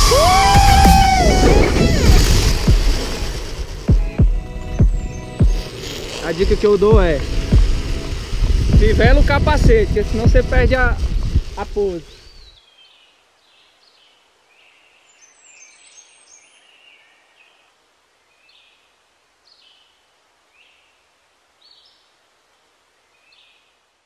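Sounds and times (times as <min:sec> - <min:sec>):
soft outdoor hiss: 0:00.0 - 0:24.0
faint birds chirping: 0:04.0 - 0:08.2, 0:11.8 - 0:24.0.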